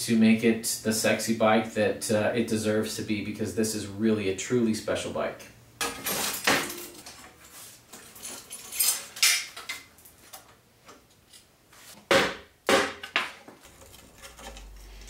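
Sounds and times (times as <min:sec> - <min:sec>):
metal tools clinking and knocking: 0:05.8 - 0:10.4.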